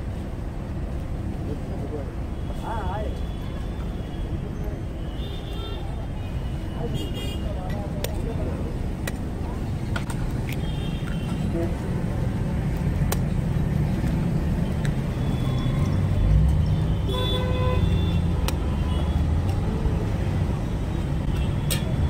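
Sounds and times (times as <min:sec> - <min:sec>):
street traffic rumble: 0:00.0 - 0:22.0
vehicle horn: 0:17.0 - 0:19.2.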